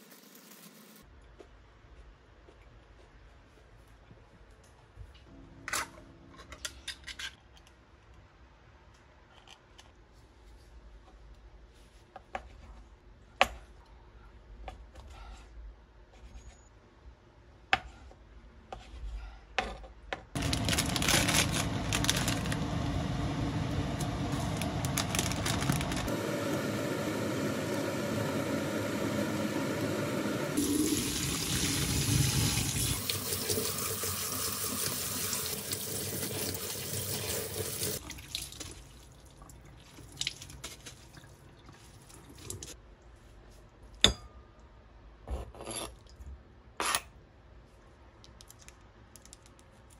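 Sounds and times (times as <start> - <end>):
tap water running into sink: 30.6 - 38.8.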